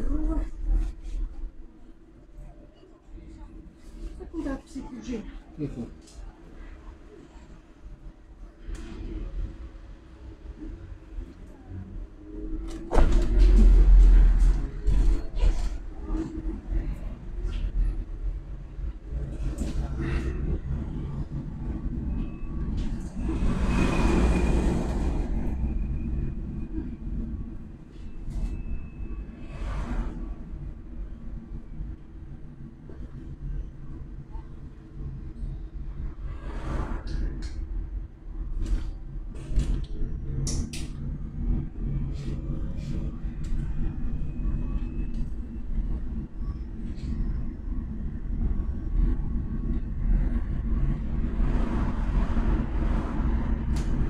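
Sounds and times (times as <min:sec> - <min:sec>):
vehicle cabin road rumble: 0:08.0 - 0:54.0
rush of noise: 0:32.5 - 0:54.0.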